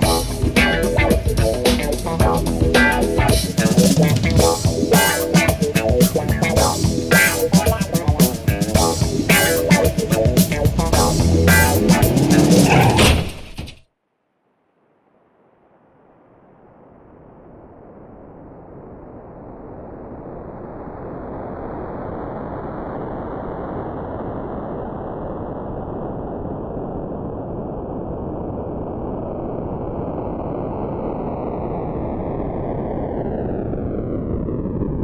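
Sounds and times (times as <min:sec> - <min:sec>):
electronic rushing noise: 0:00.0 - 0:13.3
jet-like flanger sweep: 0:00.0 - 0:13.3.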